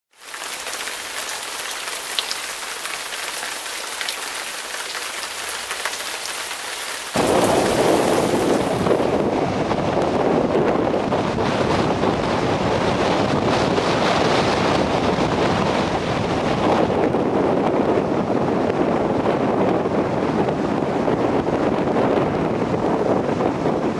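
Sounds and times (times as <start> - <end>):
rough breaking surf: 3.1 - 10.0
wind rumbling on microphone: 7.1 - 23.9.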